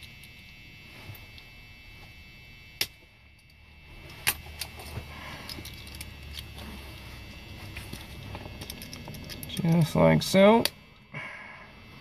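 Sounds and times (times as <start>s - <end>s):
low hum: 0.0s - 12.0s
small metal parts rattling: 4.2s - 6.5s, 7.8s - 10.0s.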